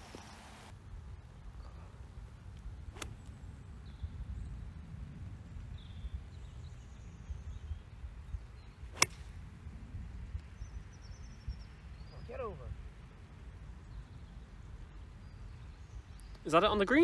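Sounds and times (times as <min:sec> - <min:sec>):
wind rumble on microphone: 0:00.0 - 0:16.8
golf club striking ball: 0:09.0 - 0:09.3.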